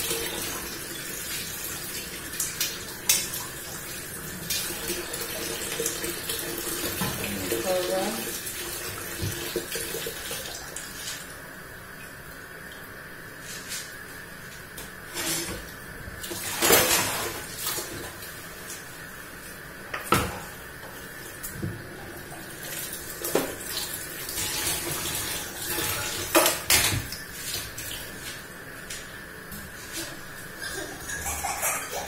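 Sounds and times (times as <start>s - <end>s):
tap water running into sink: 0.0s - 11.0s, 19.9s - 28.4s.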